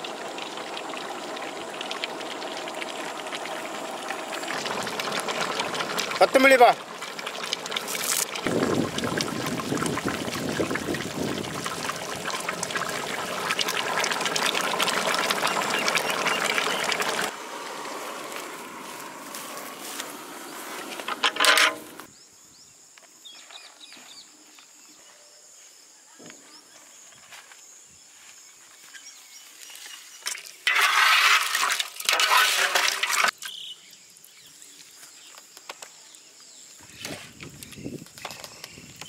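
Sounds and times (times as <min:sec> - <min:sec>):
curry boiling and bubbling: 0:00.0 - 0:22.1, 0:30.2 - 0:33.8
open-air ambience: 0:00.0 - 0:39.0.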